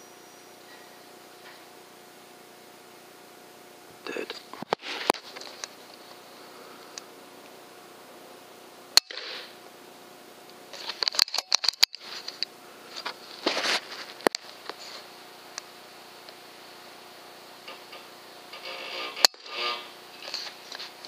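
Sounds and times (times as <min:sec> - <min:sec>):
air rifle firing: 0:09.0 - 0:09.5.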